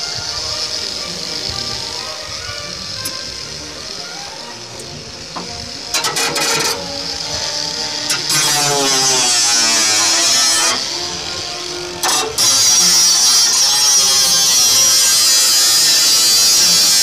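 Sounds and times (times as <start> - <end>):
angle grinder cutting steel sheet: 0.0 - 17.0.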